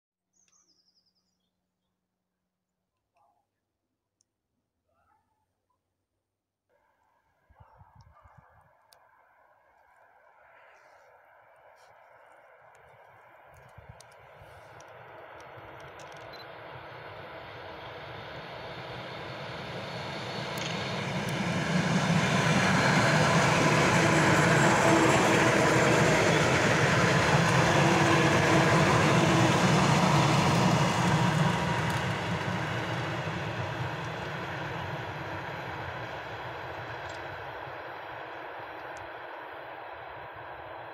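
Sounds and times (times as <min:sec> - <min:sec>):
electric train hum: 0:09.8 - 0:40.9
train wheels on rails: 0:11.8 - 0:40.9.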